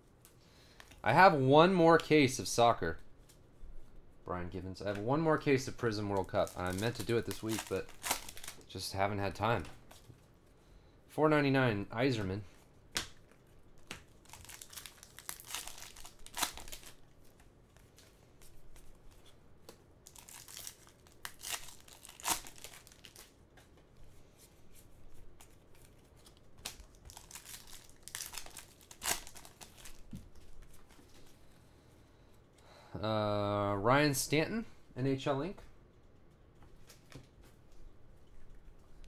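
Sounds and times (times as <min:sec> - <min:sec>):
plastic wrappers crinkling and tearing: 0:05.8 - 0:08.8, 0:13.2 - 0:18.1, 0:20.0 - 0:23.4, 0:25.4 - 0:31.1.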